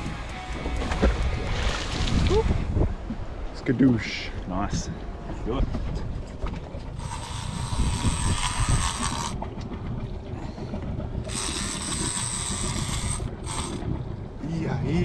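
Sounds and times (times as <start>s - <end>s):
fishing reel drag screaming: 7.0s - 9.4s, 11.2s - 13.9s.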